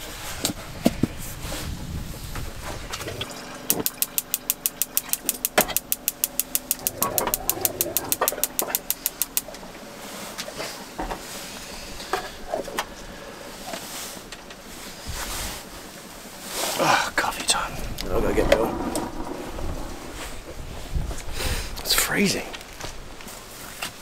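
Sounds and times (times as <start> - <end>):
spark igniter ticking: 3.7 - 9.6.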